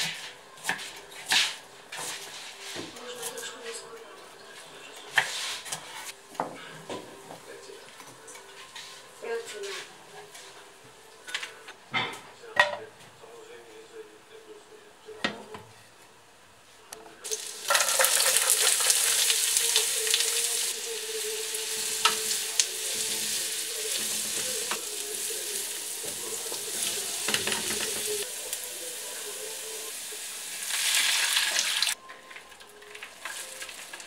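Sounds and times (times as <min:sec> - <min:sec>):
onion sizzling in a pan: 0:17.2 - 0:32.0, 0:32.6 - 0:34.0.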